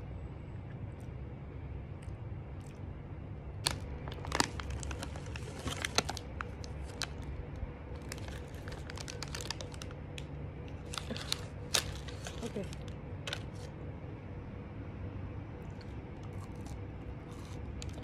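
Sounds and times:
low steady hum: 0:00.0 - 0:18.0
foil wrapper crinkling: 0:03.6 - 0:07.3, 0:08.0 - 0:13.7.

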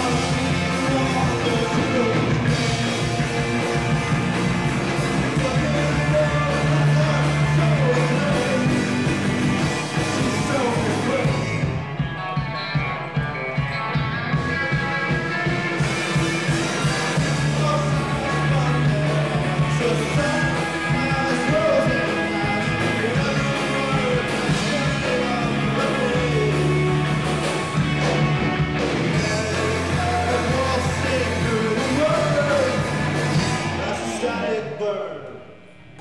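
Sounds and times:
man singing: 0:00.0 - 0:02.8, 0:04.8 - 0:09.3, 0:09.9 - 0:11.8, 0:16.3 - 0:27.2, 0:29.0 - 0:35.4
drum kit: 0:00.0 - 0:34.5
bass guitar: 0:00.0 - 0:36.0
electric guitars: 0:00.0 - 0:36.0.

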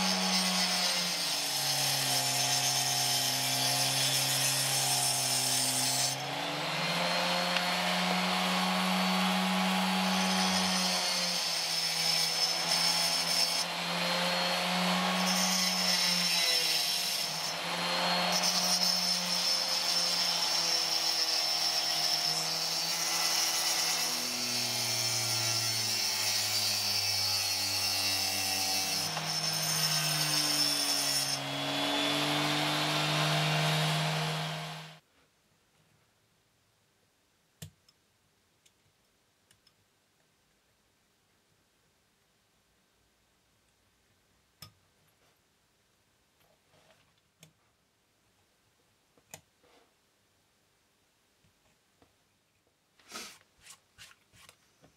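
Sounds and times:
gritty hiss of cutting slate: 0:53.0 - 0:53.4.

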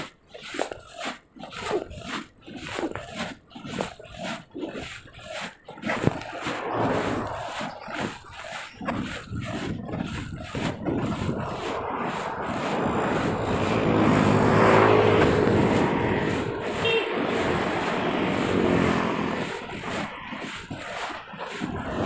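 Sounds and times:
passing traffic: 0:06.2 - 0:08.8, 0:10.7 - 0:22.0
car passing by: 0:06.4 - 0:08.2, 0:11.4 - 0:20.3.

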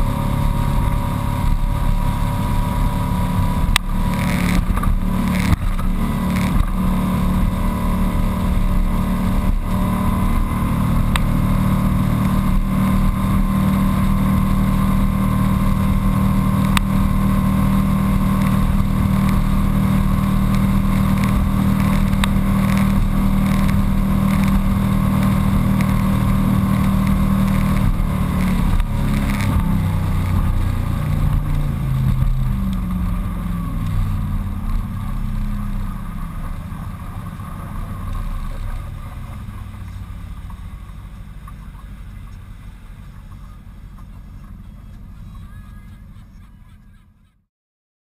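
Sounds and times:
boat engine drone: 0:00.0 - 0:47.4.

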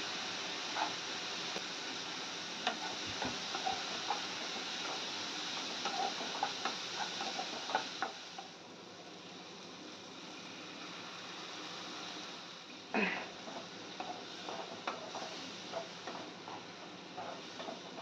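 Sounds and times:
onions sizzling: 0:00.0 - 0:18.0
spatula knocking and scraping pan: 0:13.4 - 0:18.0.

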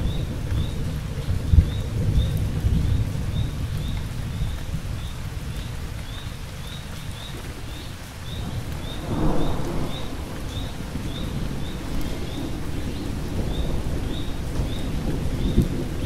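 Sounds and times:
steady rain: 0:00.0 - 0:16.0
thunder rumbling: 0:08.3 - 0:16.0.

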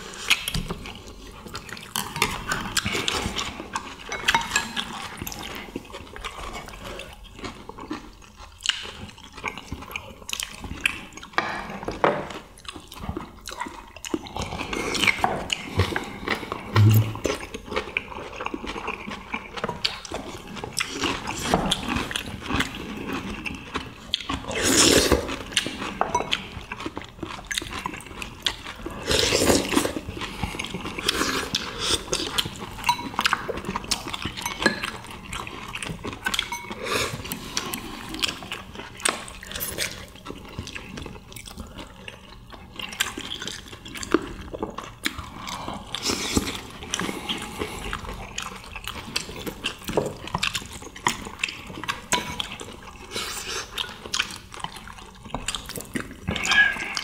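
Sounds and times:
people chewing and slurping: 0:00.0 - 0:57.0
chopsticks and spoons clicking on dishes: 0:04.0 - 0:05.0, 0:32.2 - 0:37.0.

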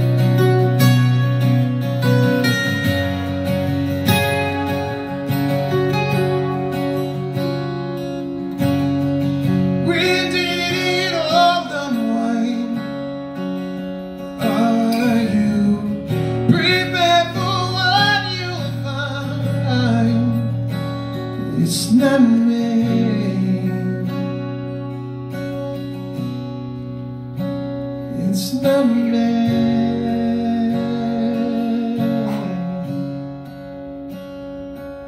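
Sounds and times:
acoustic guitar: 0:00.0 - 0:35.0
man singing: 0:09.7 - 0:13.2, 0:14.3 - 0:20.7, 0:21.3 - 0:24.4, 0:28.1 - 0:33.3.

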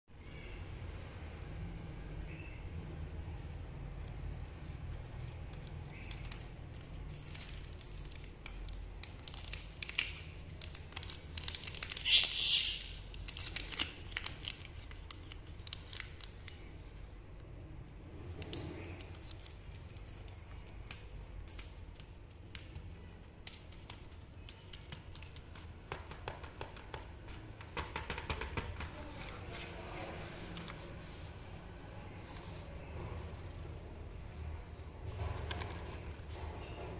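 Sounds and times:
plastic wrappers crinkling: 0:04.9 - 0:25.7.

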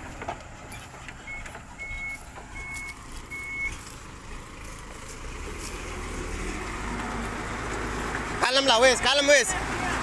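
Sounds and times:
truck engine low rumble: 0:00.0 - 0:10.0
truck reversing alarm beeping: 0:00.6 - 0:03.9.

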